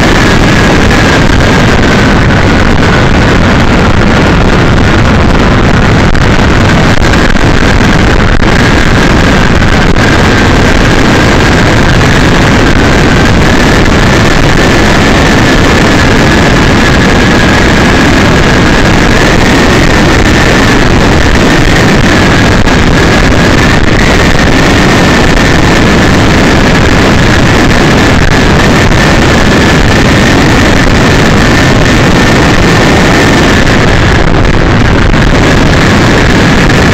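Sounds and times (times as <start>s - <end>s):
car road and wind noise: 0.0s - 36.9s.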